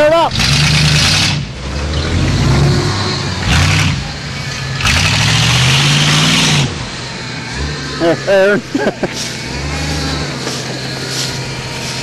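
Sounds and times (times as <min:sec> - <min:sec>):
pickup truck engine revving: 0:00.0 - 0:12.0.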